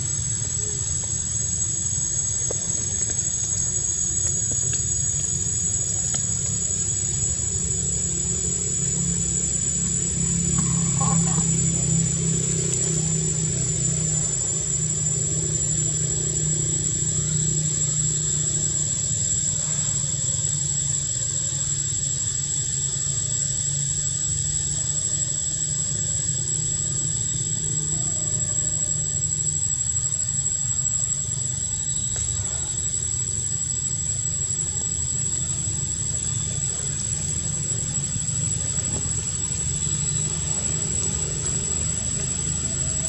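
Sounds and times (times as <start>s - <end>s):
high-pitched whine: 0.0s - 43.0s
low engine-like hum: 0.0s - 43.0s.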